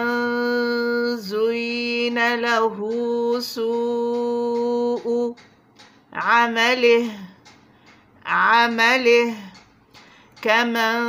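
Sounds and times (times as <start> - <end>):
person chanting recitation: 0.0 - 5.5, 6.2 - 7.5, 8.2 - 9.6, 10.4 - 11.0.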